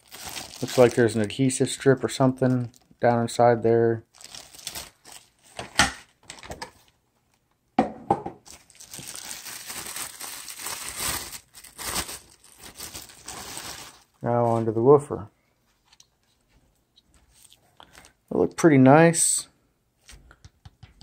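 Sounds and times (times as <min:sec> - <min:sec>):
plastic bag crinkling: 0:00.0 - 0:02.9, 0:04.1 - 0:05.6, 0:08.4 - 0:14.7.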